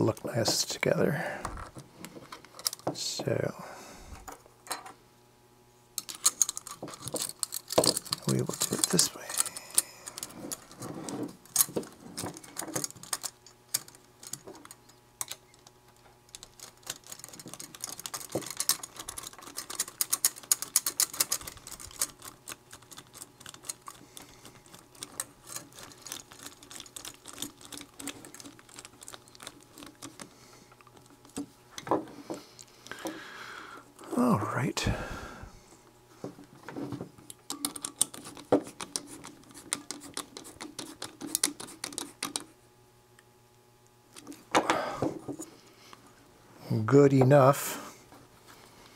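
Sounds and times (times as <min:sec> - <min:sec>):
small metal parts clicking: 0:06.0 - 0:31.4, 0:37.3 - 0:39.1.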